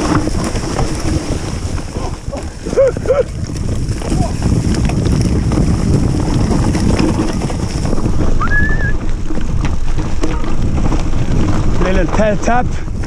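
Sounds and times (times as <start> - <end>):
bike rattling and knocking: 0.0 - 13.0
tyres rumbling on dirt: 0.0 - 13.0
wind buffeting microphone: 0.0 - 13.0
high squeal: 8.4 - 9.0.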